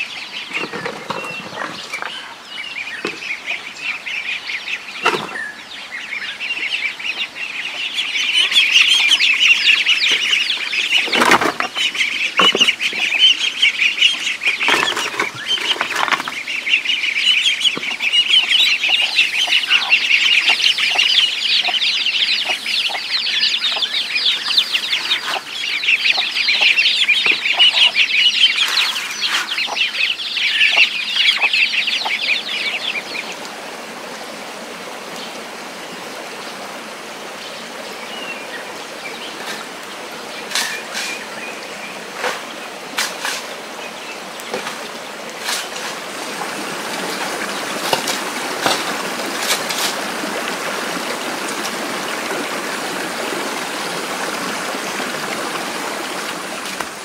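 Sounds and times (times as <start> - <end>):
chickens clucking: 0.0 - 5.6, 6.3 - 33.5
ducklings peeping: 0.0 - 33.5.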